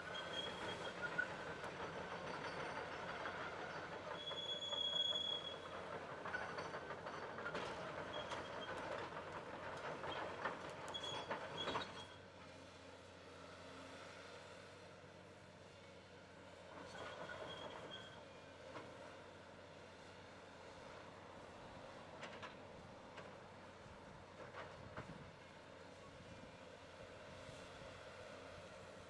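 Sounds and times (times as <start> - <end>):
short high squeals: 0.0 - 1.3, 4.1 - 5.7.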